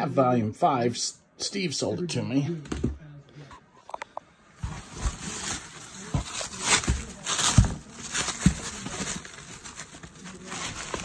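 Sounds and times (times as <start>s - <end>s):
bubble wrap and cardboard rustling: 4.5s - 11.0s
box thumps: 4.6s - 9.5s.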